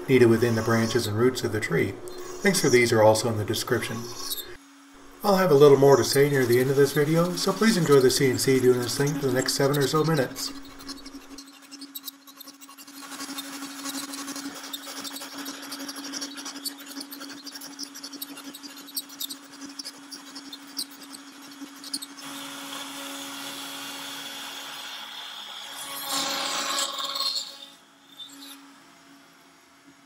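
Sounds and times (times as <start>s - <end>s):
router spindle humming: 0.0s - 29.0s
router cutting wood: 5.3s - 28.6s.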